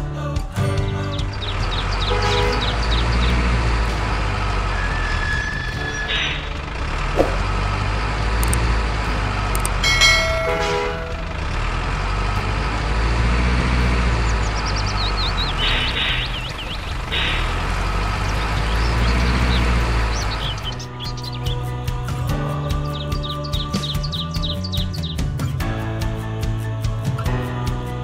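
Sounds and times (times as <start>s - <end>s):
toy truck engine rumble: 1.3s - 20.8s
short horn toots: 2.1s - 2.9s.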